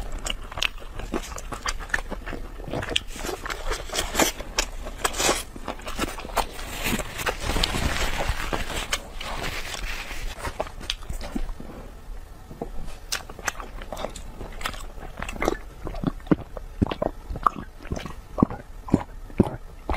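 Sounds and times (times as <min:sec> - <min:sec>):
chewing with sharp clicks: 0:00.0 - 0:06.5, 0:13.1 - 0:19.9
sipping and swallowing: 0:13.1 - 0:19.9.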